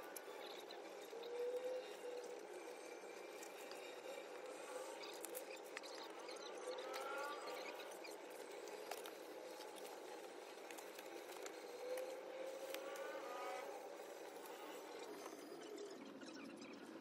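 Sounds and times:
faint passing vehicle engine: 6.0 - 9.3, 11.4 - 16.1
light clicks and paper sounds: 6.9 - 13.1.

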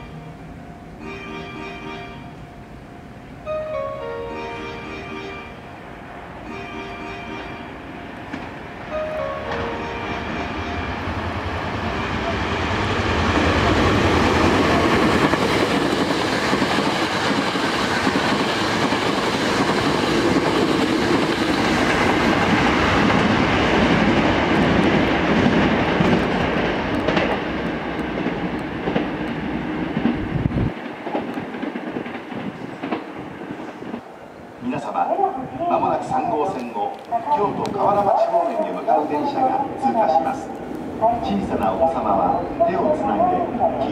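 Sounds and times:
electric train passing at speed: 0.0 - 43.9.

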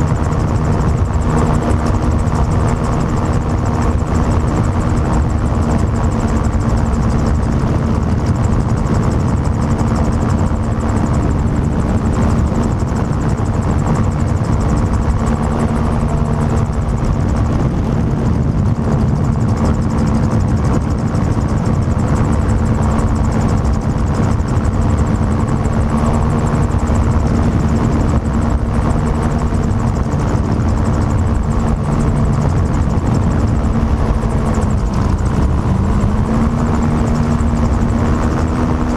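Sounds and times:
gyrocopter engine running: 0.0 - 38.9
wind rush over microphone: 0.0 - 38.9.

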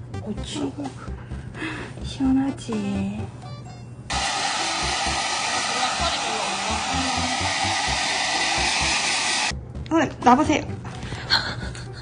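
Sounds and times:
hair dryer blowing: 4.1 - 9.5.

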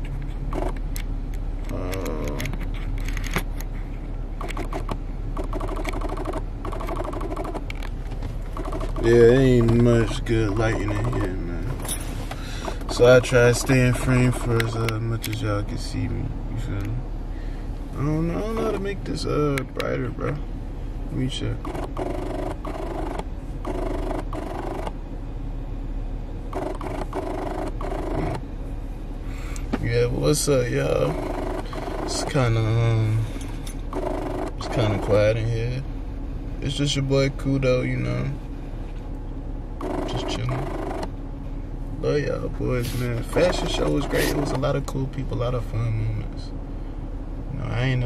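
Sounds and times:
car interior rumble: 0.0 - 48.0
rapidly pulsing pitched sound: 4.4 - 7.7, 8.5 - 11.6, 21.5 - 25.0, 26.5 - 28.5, 30.6 - 33.1, 33.9 - 35.4, 39.8 - 41.1, 42.9 - 44.7
muffled pitched sound: 8.5 - 11.9, 21.1 - 25.0, 26.5 - 28.5, 30.1 - 33.3, 39.8 - 41.1, 42.0 - 45.0.

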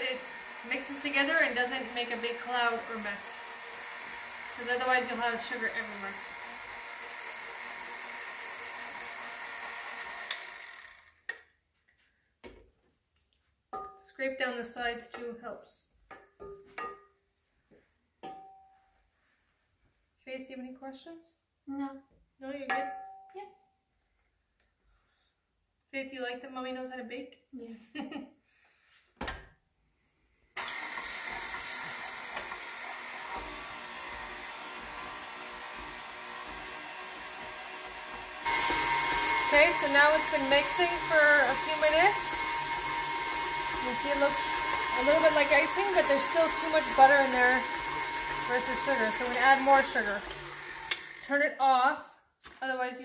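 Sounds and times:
stand mixer whisking: 0.0 - 11.2, 30.6 - 51.2.

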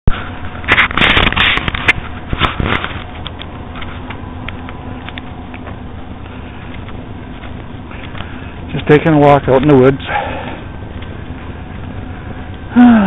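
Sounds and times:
rustling at microphone: 0.1 - 8.8
faint hum: 0.1 - 13.0.

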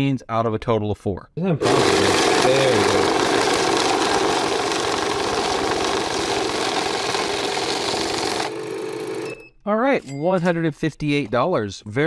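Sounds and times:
counting machine motor hum: 1.6 - 9.4.

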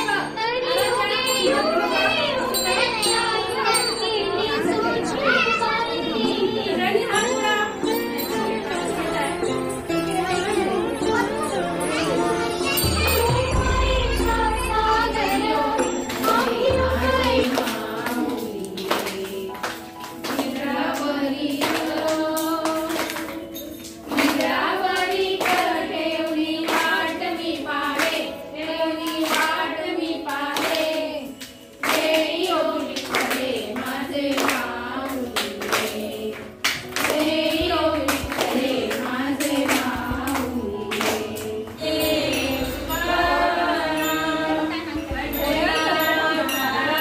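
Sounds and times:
person singing devotional song: 0.0 - 47.0
sharp percussive strikes: 12.0 - 18.6, 36.9 - 47.0.

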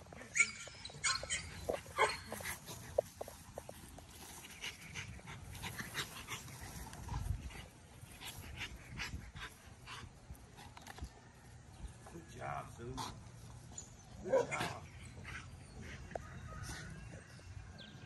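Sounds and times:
dog panting hard: 4.2 - 10.2.

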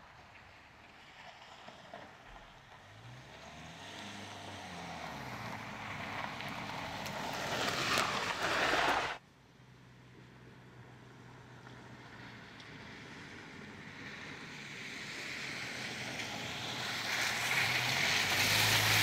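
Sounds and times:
car engine passing: 0.3 - 9.2, 12.2 - 19.0
tyres crunching on gravel: 0.3 - 9.2.

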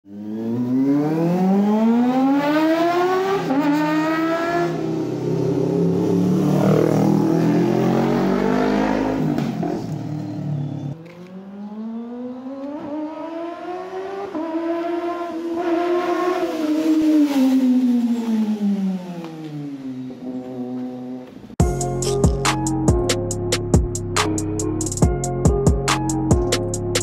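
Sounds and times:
motorcycle engine revving: 0.1 - 21.4.

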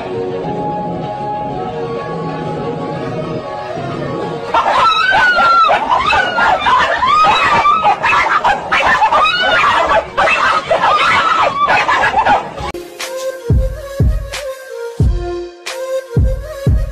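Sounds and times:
music: 0.0 - 16.9
shrill laughing cries: 4.2 - 12.7.

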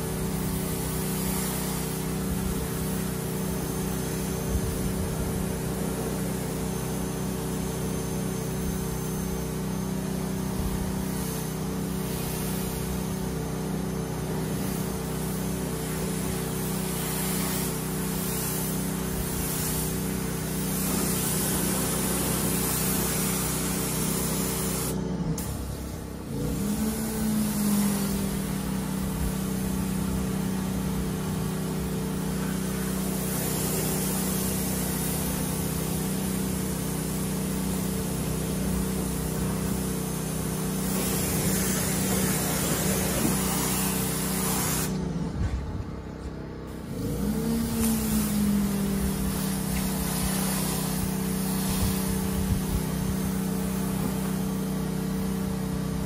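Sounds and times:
pressure washer motor humming: 0.0 - 56.0
water jet hissing: 10.4 - 13.4, 14.2 - 45.0, 47.0 - 55.4.

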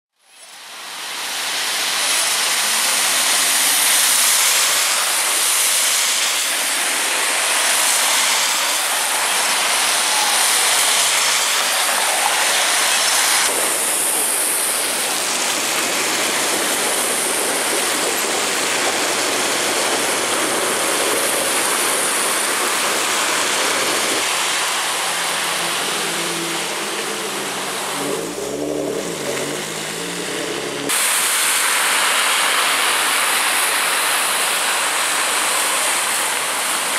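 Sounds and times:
car tyres on wet pavement: 0.2 - 36.9
rain hissing: 0.2 - 36.9
car engines running: 2.0 - 31.3.

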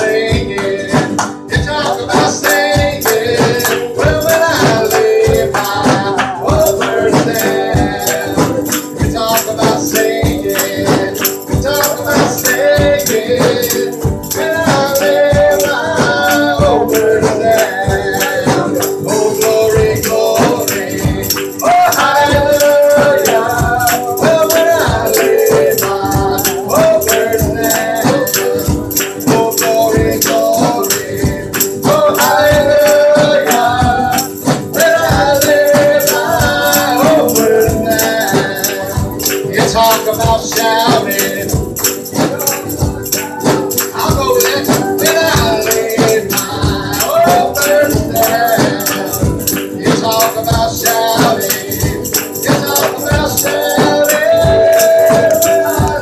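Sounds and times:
drum kit driving beat: 0.0 - 56.0
man singing through microphone: 0.0 - 56.0
shaken percussion: 0.0 - 56.0.

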